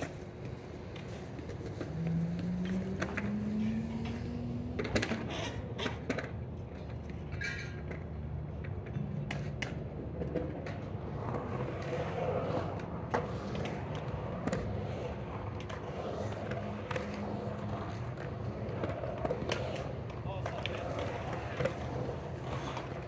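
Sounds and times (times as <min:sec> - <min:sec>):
skateboard wheels rolling on concrete: 0:00.0 - 0:23.0.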